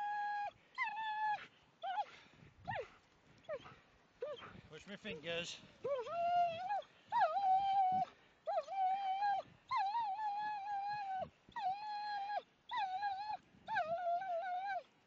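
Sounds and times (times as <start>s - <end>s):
dog whining: 0.0s - 2.1s, 5.8s - 14.9s.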